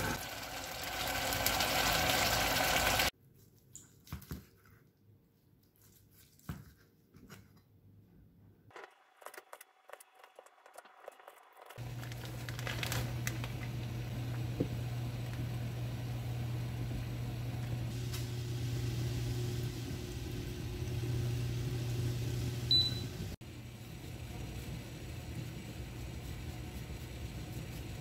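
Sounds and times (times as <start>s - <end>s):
water boiling in a pot: 0.0s - 3.1s, 10.6s - 28.0s
short high beep: 22.7s - 23.0s.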